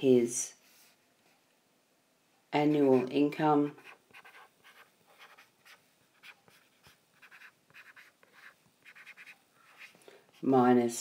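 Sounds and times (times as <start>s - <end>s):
stylus scratching on glass screen: 2.7s - 10.6s.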